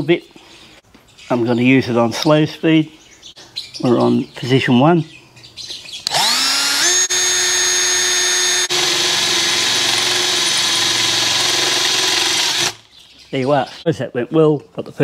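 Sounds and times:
cordless drill boring through metal: 0:06.0 - 0:12.9.

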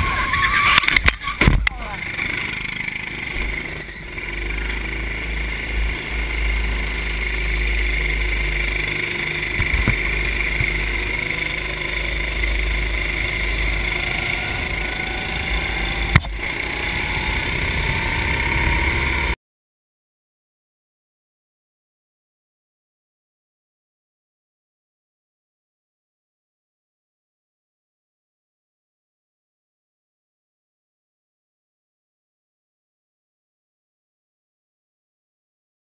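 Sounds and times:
racing kart engine: 0:00.0 - 0:19.4.

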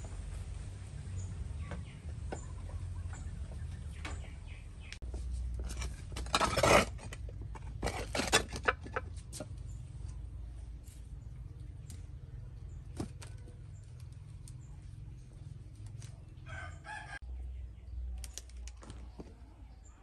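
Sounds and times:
chicken and bird calls: 0:00.2 - 0:05.0, 0:10.8 - 0:20.0
clay jar scraping: 0:05.4 - 0:09.5.

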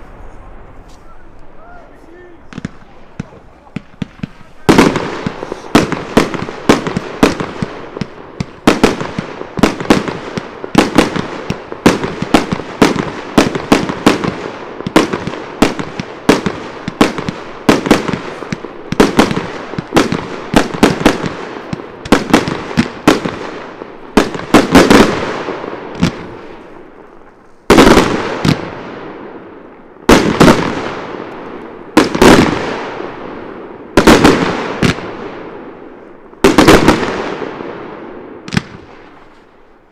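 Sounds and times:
firework shells bursting: 0:02.4 - 0:28.8.

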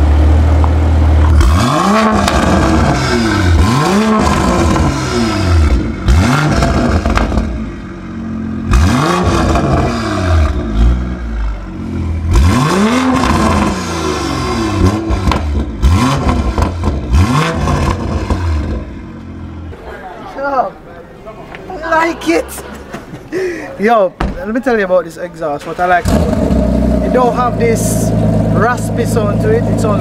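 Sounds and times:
car engine revving: 0:00.0 - 0:19.7, 0:25.6 - 0:30.0.

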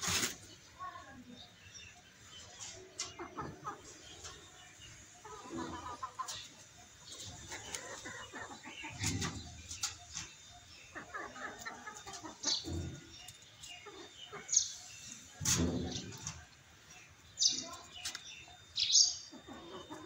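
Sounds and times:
rooster clucking: 0:02.6 - 0:16.5, 0:19.2 - 0:20.0.

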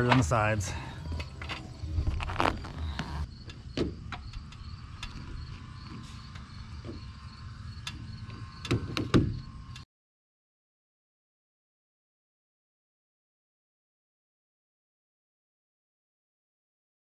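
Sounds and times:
faint insects chirping: 0:00.0 - 0:09.8
vinyl wrap peeling crackles: 0:02.0 - 0:03.3.

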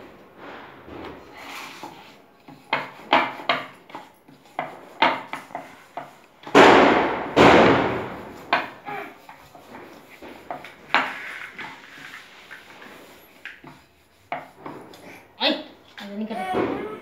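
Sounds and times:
rolling pin knocking on board: 0:04.6 - 0:08.8
loud metal clangs: 0:06.5 - 0:08.7.

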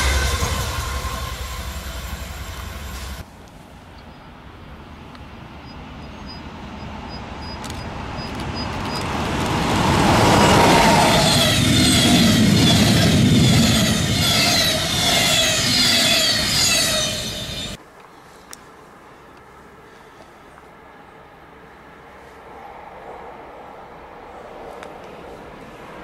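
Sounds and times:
train passing at speed: 0:00.0 - 0:17.8, 0:20.8 - 0:26.0
train wheels clattering: 0:08.2 - 0:17.8.

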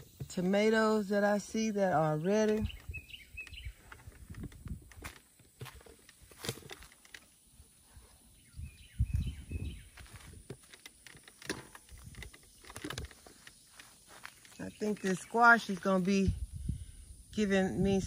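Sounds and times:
bird chirps: 0:02.1 - 0:03.9, 0:08.2 - 0:10.3
plants rustling and clicking: 0:02.2 - 0:07.5, 0:09.7 - 0:16.2
microphone rumble: 0:08.4 - 0:10.5, 0:16.3 - 0:18.0.

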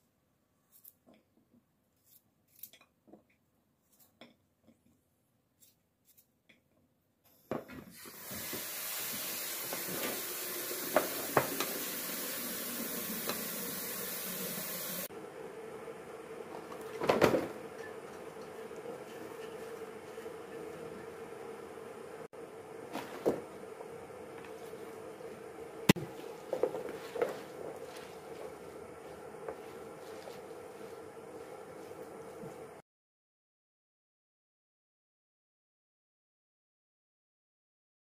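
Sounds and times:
steady hiss: 0:08.0 - 0:16.1.

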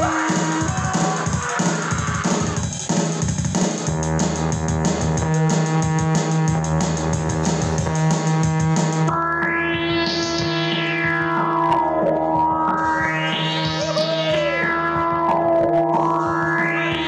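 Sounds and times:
electronic sweep rising in pitch: 0:00.0 - 0:02.6, 0:07.2 - 0:17.0
drum kit beat: 0:00.0 - 0:17.0.

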